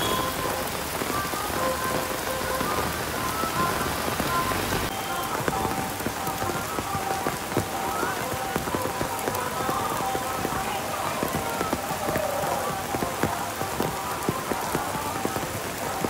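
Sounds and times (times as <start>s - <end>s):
heavy rain on a road: 0.0s - 16.0s
raindrop strikes: 0.0s - 16.0s.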